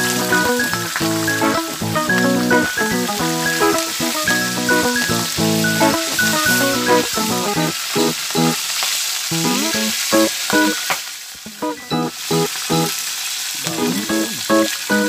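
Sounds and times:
music of short repeated notes: 0.0s - 8.6s, 9.3s - 10.8s, 11.5s - 13.0s
fish frying in hot oil: 0.0s - 15.0s.

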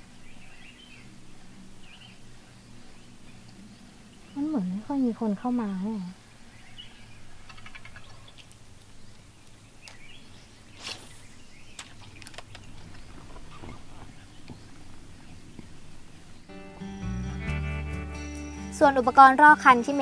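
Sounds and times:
bird chirps: 0.0s - 17.1s
faint outdoor ambience: 0.0s - 20.0s
light clicks: 11.7s - 14.8s
music: 16.5s - 20.0s.

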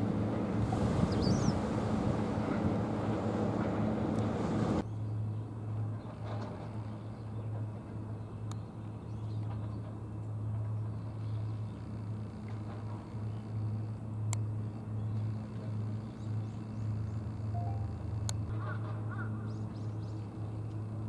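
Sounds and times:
low hum of distant engine: 0.0s - 21.0s
wind on microphone: 0.1s - 4.8s.

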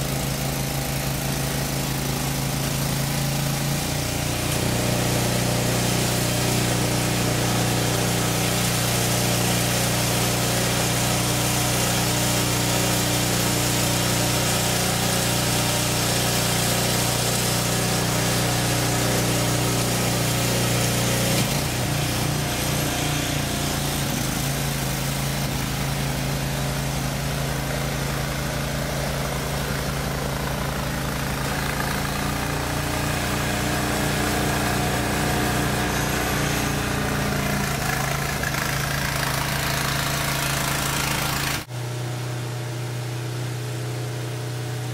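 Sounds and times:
snow blower engine running: 0.0s - 44.9s.

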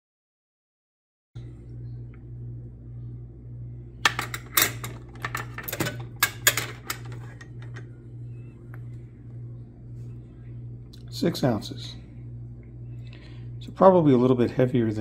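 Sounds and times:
low steady hum: 1.4s - 15.0s
carabiners clattering on metal pan: 4.1s - 7.8s.

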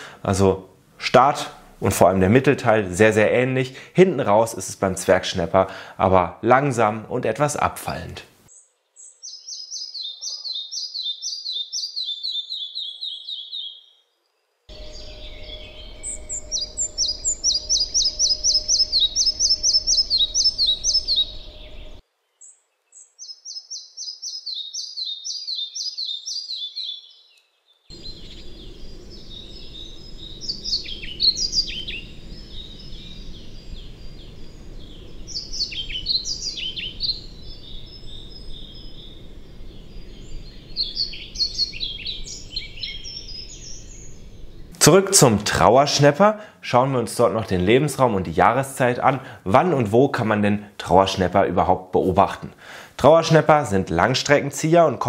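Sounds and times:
hissy background: 0.0s - 9.2s, 14.2s - 23.0s, 27.9s - 55.0s
high varied bird phrases: 5.2s - 13.9s, 14.7s - 22.0s, 27.9s - 55.0s
flycatcher song: 8.4s - 46.2s.

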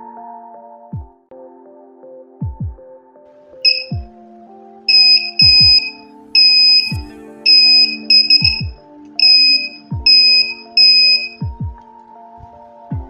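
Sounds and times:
electronic music: 3.7s - 4.0s, 4.9s - 11.5s
high-pitched buzzer beeps: 3.7s - 4.0s, 4.9s - 11.4s.

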